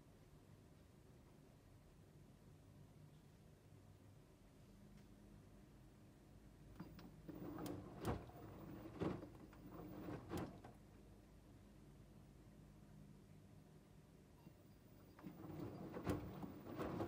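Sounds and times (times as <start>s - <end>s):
laundry and water sloshing: 6.8s - 10.8s, 15.0s - 17.0s
laundry thuds: 6.8s - 10.8s, 15.2s - 17.0s
washing machine drum turning: 6.8s - 10.8s, 15.1s - 17.0s.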